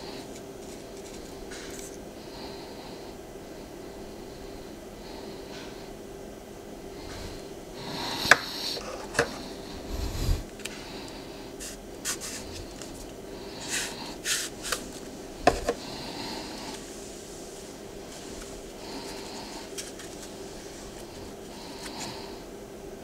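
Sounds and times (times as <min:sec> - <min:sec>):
faint steady hum: 0:00.0 - 0:23.0
cardboard scraping: 0:11.6 - 0:13.0, 0:13.6 - 0:15.8, 0:18.1 - 0:22.2.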